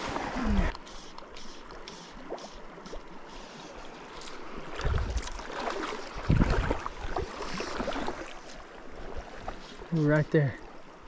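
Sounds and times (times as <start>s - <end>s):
river water running: 0.0s - 11.0s
water sloshing surges: 0.0s - 11.0s.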